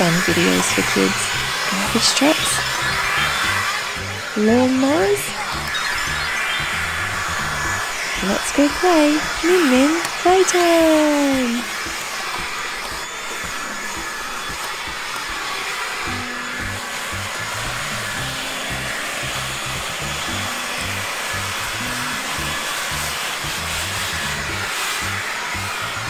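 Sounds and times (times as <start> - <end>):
background music with bass line: 0.0 - 7.9, 16.0 - 26.0
leaf blower running: 0.0 - 26.0.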